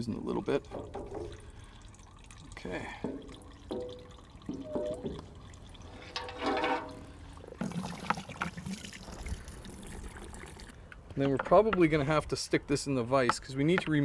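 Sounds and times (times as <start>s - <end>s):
diesel fuel pouring into a bucket: 0.0s - 10.8s.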